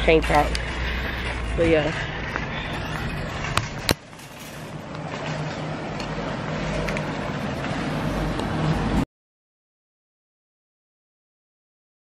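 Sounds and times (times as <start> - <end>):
motor traffic rumble: 0.0 - 9.0.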